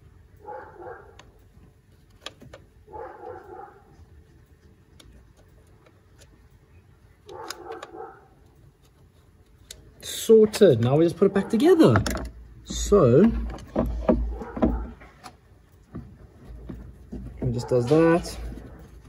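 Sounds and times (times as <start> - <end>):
faint clicks of parts handled: 7.2 - 10.6.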